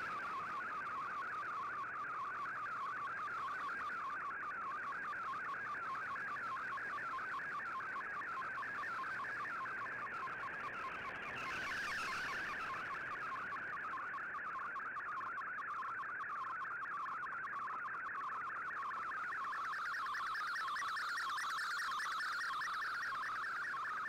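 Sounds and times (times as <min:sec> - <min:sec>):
faint radio hiss: 0:00.0 - 0:03.6.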